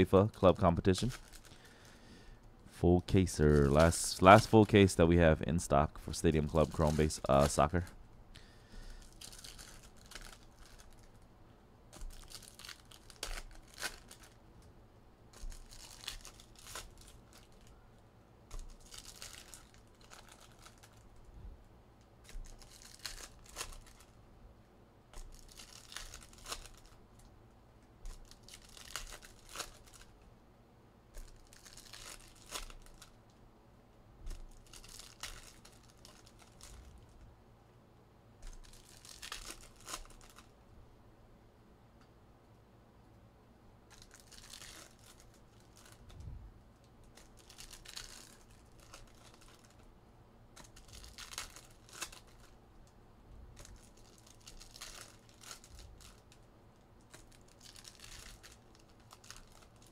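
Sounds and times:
foil wrappers tearing and crinkling: 0.0s - 2.0s, 3.2s - 4.9s, 5.6s - 11.2s, 11.9s - 14.4s, 15.3s - 17.7s, 18.5s - 21.2s, 22.2s - 24.2s, 25.1s - 27.3s, 28.0s - 30.2s, 31.2s - 33.2s, 34.2s - 37.1s, 38.4s - 40.5s, 43.9s - 46.1s, 47.0s - 49.9s, 50.6s - 52.6s, 53.6s - 56.4s, 57.0s - 59.9s.

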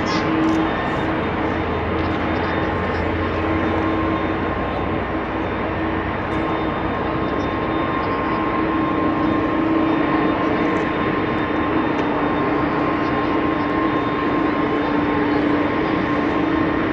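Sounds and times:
jet engine whine: 0.0s - 16.9s
jet engines drone: 0.0s - 16.9s.

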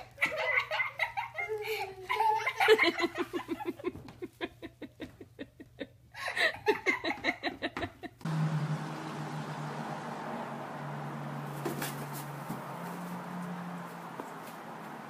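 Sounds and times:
person laughing: 0.0s - 8.2s
low hum: 8.3s - 15.0s.

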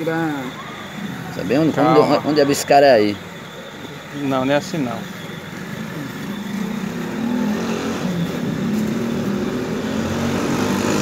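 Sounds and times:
motorcycle engine running: 3.4s - 11.0s.

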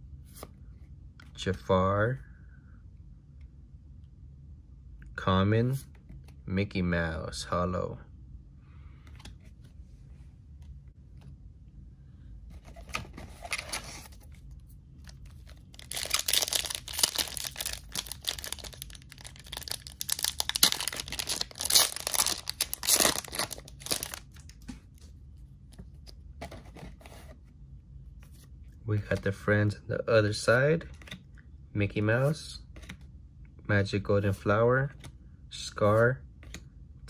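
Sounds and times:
foil wrapper tearing and crinkling: 15.7s - 24.2s.

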